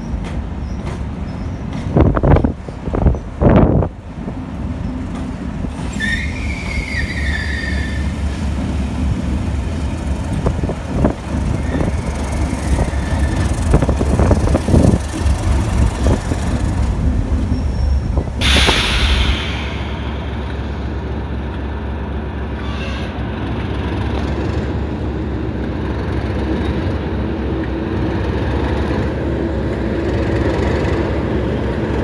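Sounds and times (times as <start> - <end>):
locomotive engine drone: 0.0 - 32.0
wheels rumbling: 0.0 - 32.0
high squeal of wheel flanges: 5.7 - 8.2, 17.4 - 20.8, 22.5 - 23.2
rushing hiss: 18.3 - 21.3.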